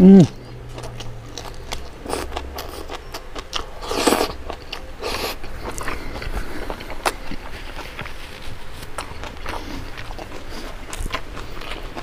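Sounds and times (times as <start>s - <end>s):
chewing crunchy leafy greens: 0.0s - 12.0s.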